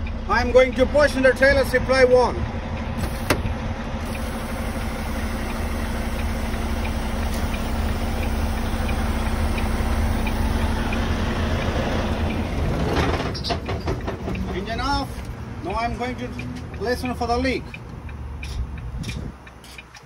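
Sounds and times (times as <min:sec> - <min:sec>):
diesel engine idling: 0:00.0 - 0:19.6
faint ticking: 0:03.5 - 0:12.6.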